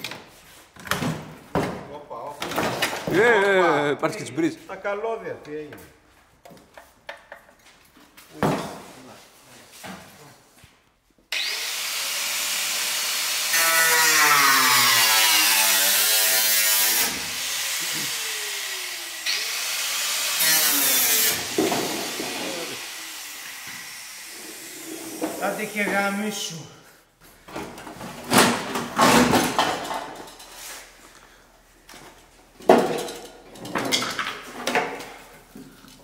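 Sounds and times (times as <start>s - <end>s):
power tool cutting sheet steel: 11.3s - 25.9s.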